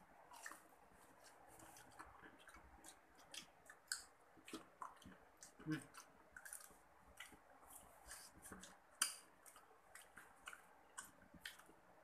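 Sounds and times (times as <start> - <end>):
chewing and lip smacking: 0.2 - 11.9.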